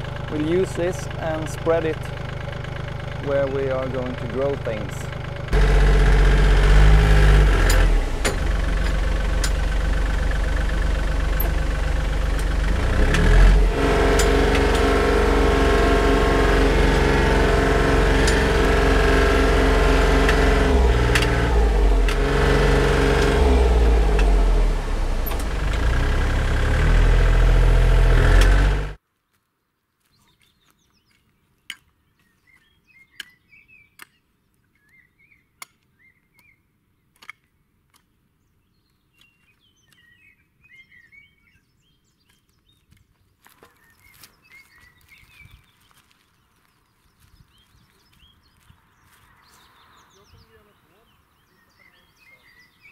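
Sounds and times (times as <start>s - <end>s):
tractor engine running: 0.0s - 29.0s
loader knocks: 3.4s - 29.0s.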